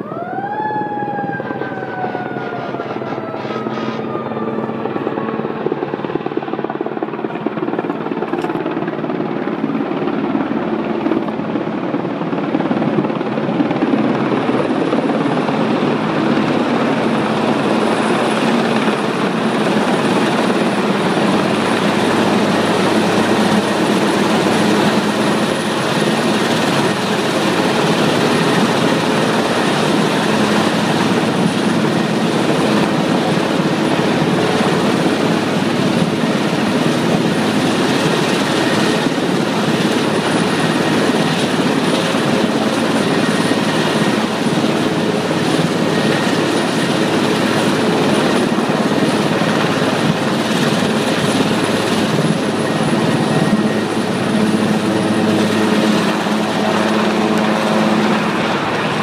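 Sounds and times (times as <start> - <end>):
siren winding down: 0.0 - 5.8
helicopter rotor rumble: 0.0 - 59.0.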